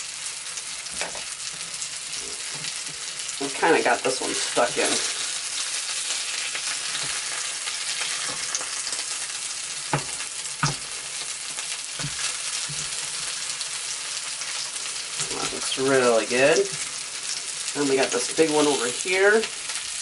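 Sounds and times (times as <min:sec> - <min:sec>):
fish sizzling in oil: 0:00.0 - 0:20.0
tongs knocking against pan: 0:09.9 - 0:10.9.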